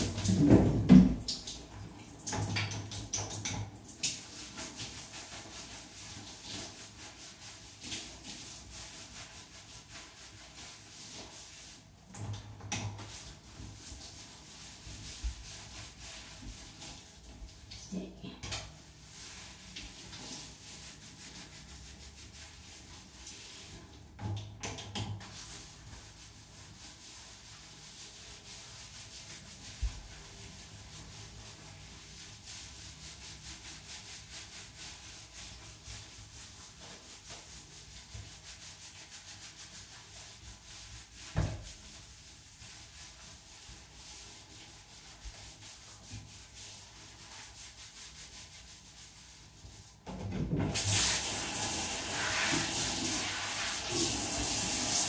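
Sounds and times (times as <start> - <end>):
water spraying from shower head: 0.0 - 17.8, 50.7 - 55.0
hands scrubbing wet dog coat: 0.0 - 50.0, 50.6 - 55.0.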